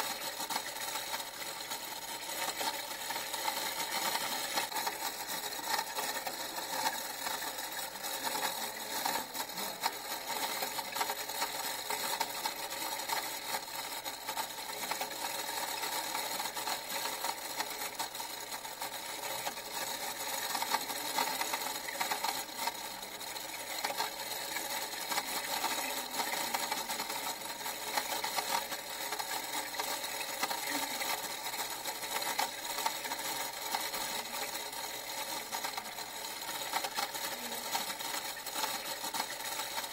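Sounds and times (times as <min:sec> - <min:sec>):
small machine clattering: 0:00.0 - 0:39.9.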